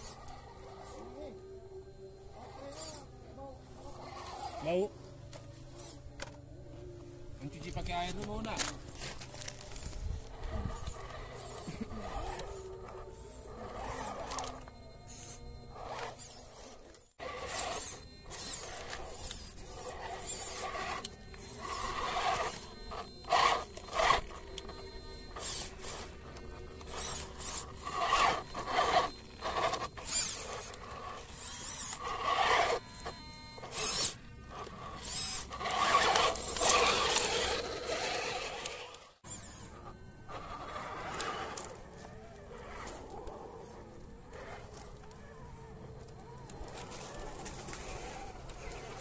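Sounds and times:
electric motor and gears whining: 0.0s - 49.0s
tyres scraping on rock: 13.6s - 32.8s, 33.7s - 45.0s.

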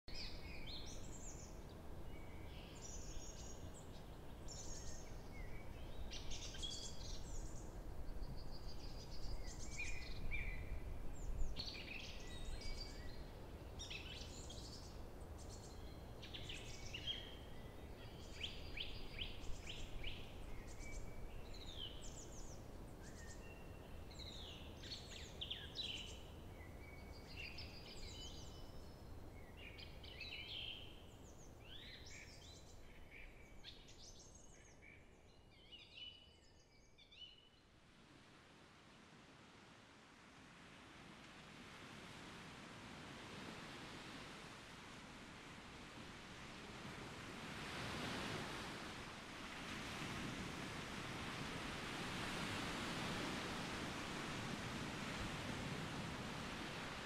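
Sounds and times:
songbirds singing and calling: 0.1s - 37.7s.

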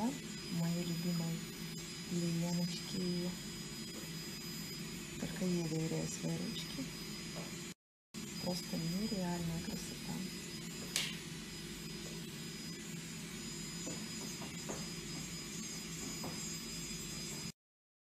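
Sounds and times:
sharp click: 10.9s - 11.2s.

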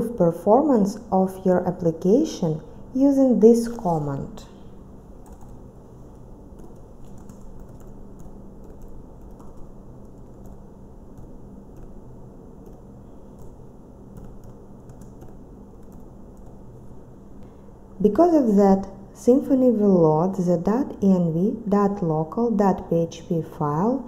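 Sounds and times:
low steady hum: 0.0s - 24.0s
keyboard typing clicks: 5.2s - 5.6s, 6.5s - 12.0s, 12.6s - 16.6s.

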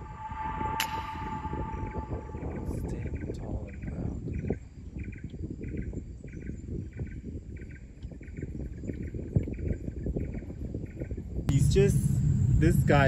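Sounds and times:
insect chirping: 0.0s - 13.0s
low steady rumble: 11.5s - 13.0s.

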